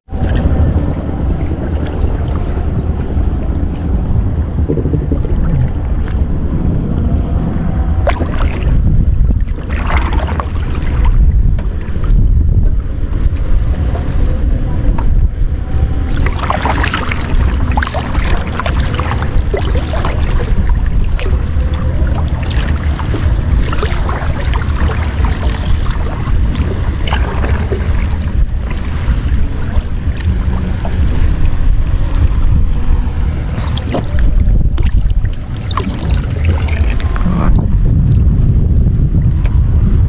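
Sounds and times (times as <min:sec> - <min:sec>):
water lapping against boat: 0:00.0 - 0:40.0
wind buffeting microphone: 0:00.0 - 0:40.0
hand splashing water: 0:09.4 - 0:11.2, 0:16.1 - 0:28.2, 0:33.6 - 0:37.3.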